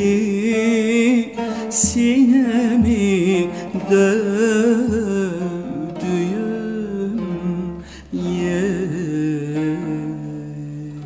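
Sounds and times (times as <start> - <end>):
plucked string melody: 0.0 - 11.0.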